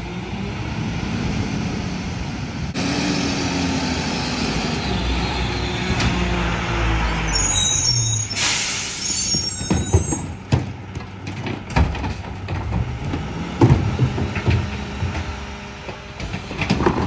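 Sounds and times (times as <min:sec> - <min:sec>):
truck passing with low rumble: 0:00.0 - 0:07.9
garbage truck engine: 0:00.0 - 0:17.0.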